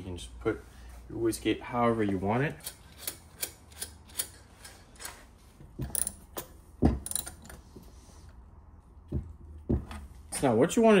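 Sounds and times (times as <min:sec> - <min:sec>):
ratchet wrench clicking: 0:02.6 - 0:04.8.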